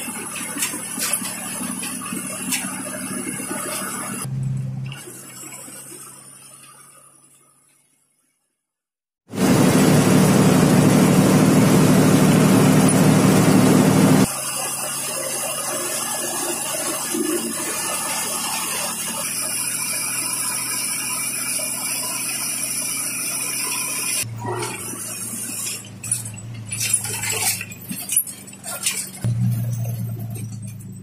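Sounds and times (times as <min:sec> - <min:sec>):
bus engine and road noise: 0:00.0 - 0:06.6, 0:09.3 - 0:14.4, 0:16.8 - 0:31.0.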